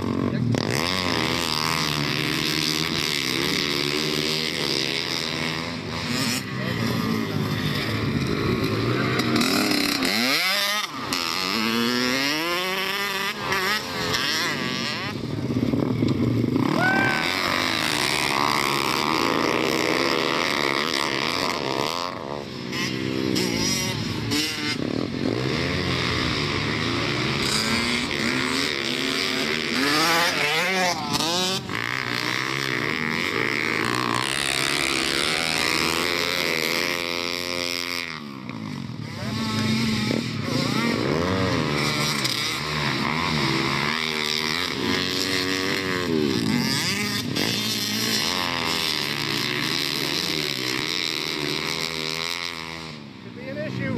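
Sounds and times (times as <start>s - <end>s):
pit bike engines revving: 0.0s - 53.9s.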